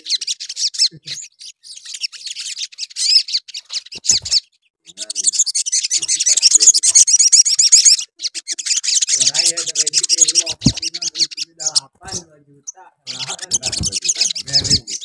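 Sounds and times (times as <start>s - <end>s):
bird twittering and trilling: 0.0s - 15.0s
soft thump: 10.5s - 10.8s.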